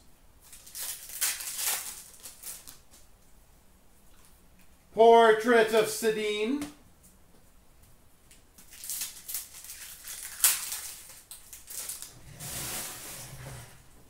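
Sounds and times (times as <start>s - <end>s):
card wrappers crinkling: 0.4s - 3.1s, 8.6s - 12.2s.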